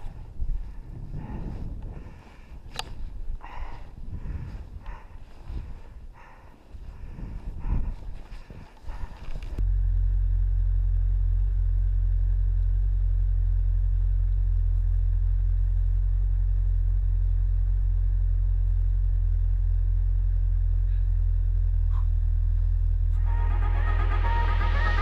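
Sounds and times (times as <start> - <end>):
snowmobile engine idling: 8.3 - 23.5.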